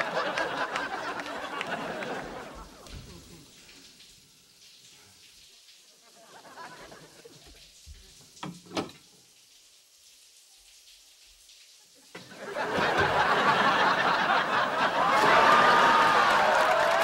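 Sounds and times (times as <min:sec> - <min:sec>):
audience applause: 0:00.0 - 0:03.4, 0:12.2 - 0:17.0.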